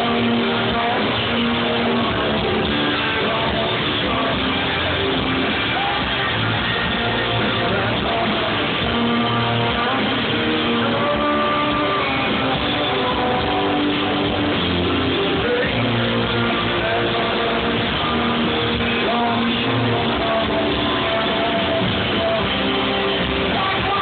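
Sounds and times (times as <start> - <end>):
rock band playing live: 0.0 - 24.0.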